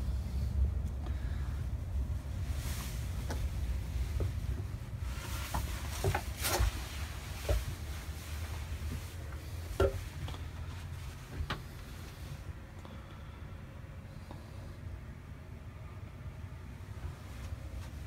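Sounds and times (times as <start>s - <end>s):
short knocks and rustles: 2.7s - 12.2s.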